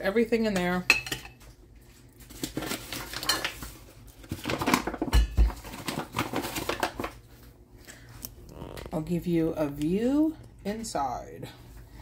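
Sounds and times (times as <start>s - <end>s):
kitchen things clattering: 0.6s - 1.6s, 2.3s - 7.2s.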